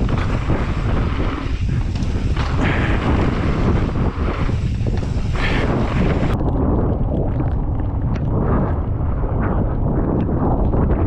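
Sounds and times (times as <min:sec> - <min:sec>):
bike knocks and rattles: 0:00.0 - 0:06.4
bike tyres rolling on dirt: 0:00.0 - 0:11.0
wind rushing over microphone: 0:00.0 - 0:11.0.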